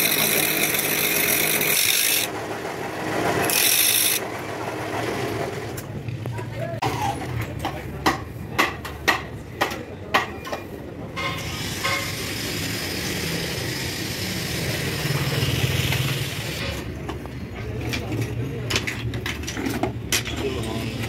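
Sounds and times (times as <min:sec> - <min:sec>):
vehicle engine running with hiss: 0:11.4 - 0:16.8.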